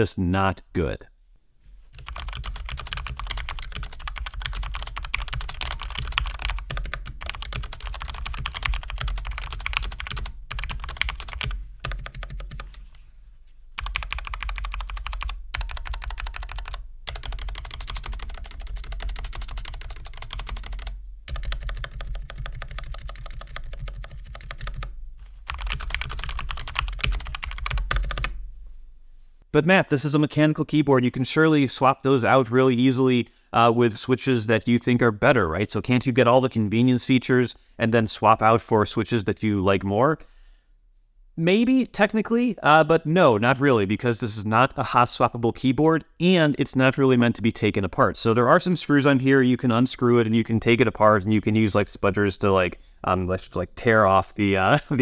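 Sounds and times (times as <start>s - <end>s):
mechanical keyboard typing: 2.0s - 12.8s, 13.8s - 28.3s.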